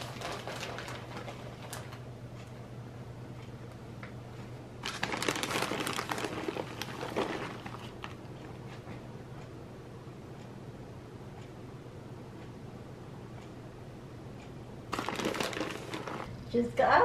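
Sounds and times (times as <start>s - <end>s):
plastic bag crinkling: 0.0s - 2.0s, 4.8s - 8.3s, 14.9s - 16.4s
faint steady hum: 0.0s - 17.0s.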